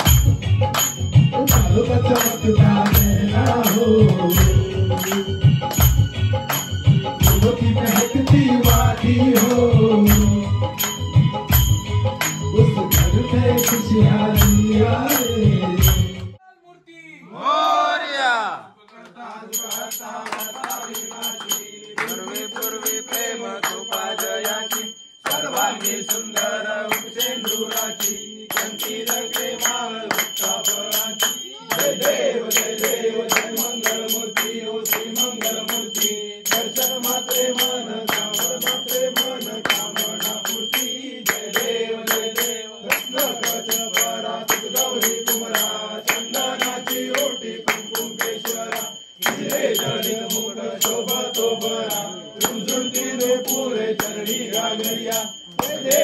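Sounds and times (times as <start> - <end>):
high bell-like ringing: 0.0 - 16.3, 19.5 - 56.0
hand clapping: 0.0 - 16.4, 18.9 - 56.0
men singing together: 0.0 - 16.4, 17.4 - 56.0.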